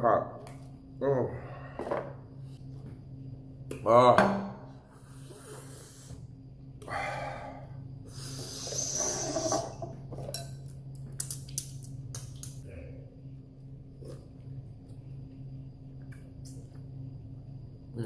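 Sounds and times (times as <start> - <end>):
person breathing hard: 6.8 - 9.5.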